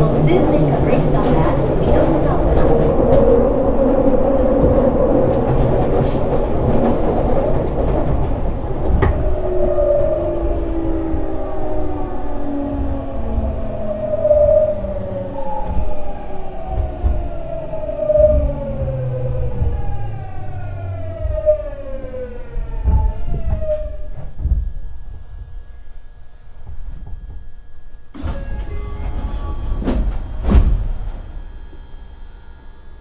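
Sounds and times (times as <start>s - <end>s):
train motor whine gliding downward: 0.0s - 33.0s
loud clunk: 28.2s - 31.9s.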